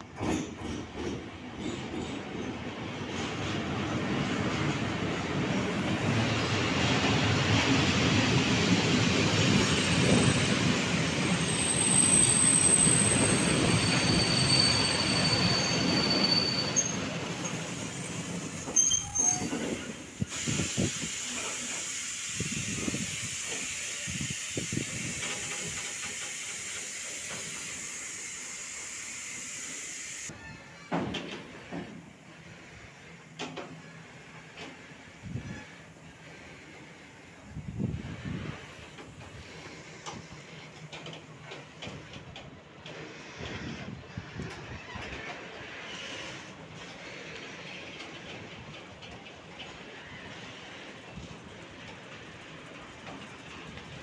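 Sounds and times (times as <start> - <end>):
freight train wheels rumbling: 0.0 - 54.0
high-pitched wheel squeals: 11.4 - 19.8
wheels clacking over rail joints: 38.7 - 54.0.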